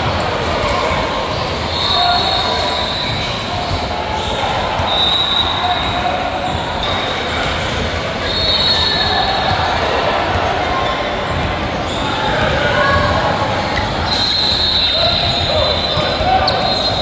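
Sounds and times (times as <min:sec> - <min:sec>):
shoe squeaks: 0:00.0 - 0:09.7, 0:10.7 - 0:13.1, 0:13.8 - 0:17.0
voices echoing in gym: 0:00.0 - 0:17.0
basketball bouncing on court: 0:08.9 - 0:17.0.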